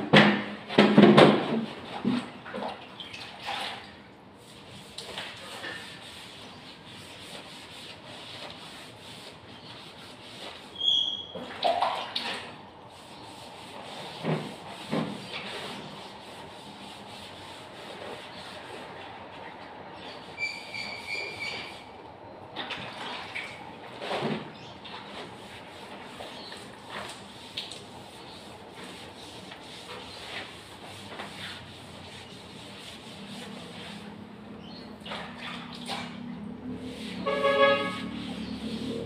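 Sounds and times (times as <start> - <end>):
wallpaper being scraped off: 4.4 - 11.3, 12.9 - 18.8, 24.0 - 34.2, 36.7 - 39.0
short high squeaks: 10.7 - 11.4, 20.2 - 22.0.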